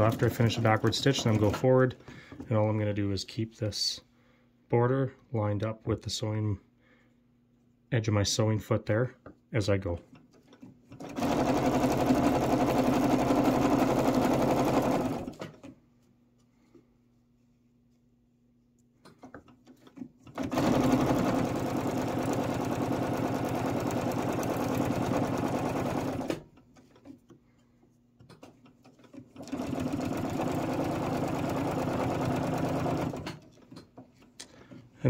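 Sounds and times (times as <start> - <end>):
sewing machine stitching: 0.0 - 2.0, 10.4 - 15.7, 19.3 - 27.2, 28.4 - 34.3.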